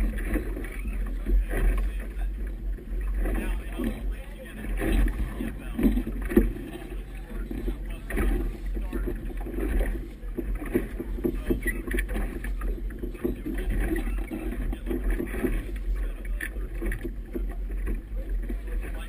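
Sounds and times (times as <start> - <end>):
hull slapping water: 0.0 - 19.0
steady low rumble: 0.0 - 19.0.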